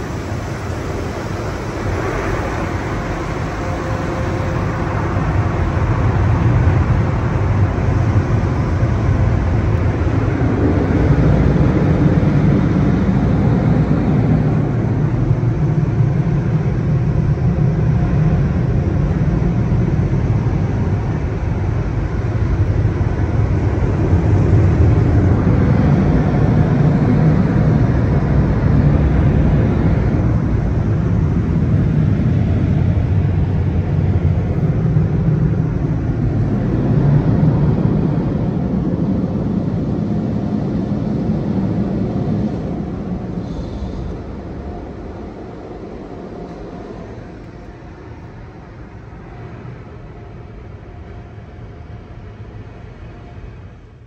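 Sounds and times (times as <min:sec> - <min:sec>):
blower dryers rushing air: 0:00.0 - 0:54.0.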